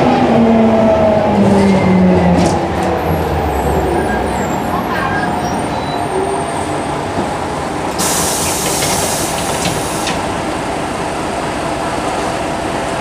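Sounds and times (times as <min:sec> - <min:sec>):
bus engine and road rumble: 0:00.0 - 0:13.0
compressed air hiss: 0:08.0 - 0:10.2.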